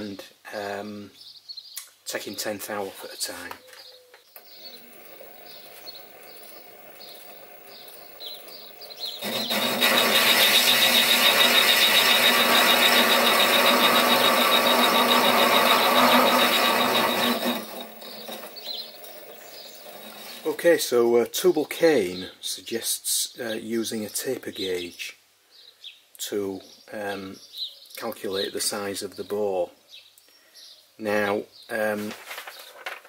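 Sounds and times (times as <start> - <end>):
lathe tool cutting metal: 4.4 - 20.4
lathe running: 4.4 - 20.5.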